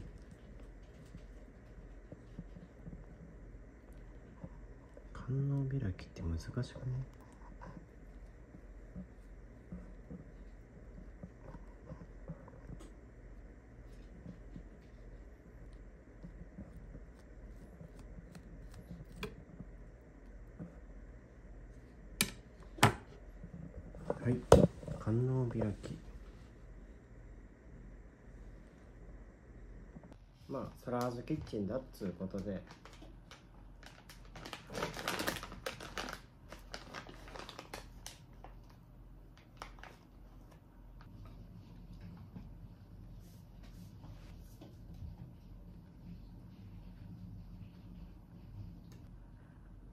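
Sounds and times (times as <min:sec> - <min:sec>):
steady low hum: 0:00.0 - 0:34.7, 0:35.3 - 0:49.9
hands working with food and utensils: 0:13.9 - 0:19.8.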